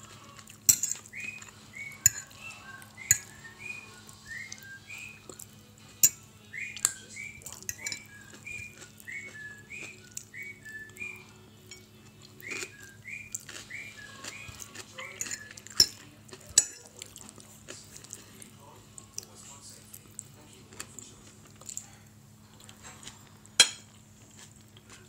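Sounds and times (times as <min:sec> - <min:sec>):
metal fork clinking on plate: 0:00.7 - 0:01.1, 0:01.9 - 0:02.4, 0:03.0 - 0:03.3, 0:06.0 - 0:06.2, 0:06.8 - 0:08.1, 0:11.7 - 0:11.9, 0:15.0 - 0:16.9, 0:23.6 - 0:23.9.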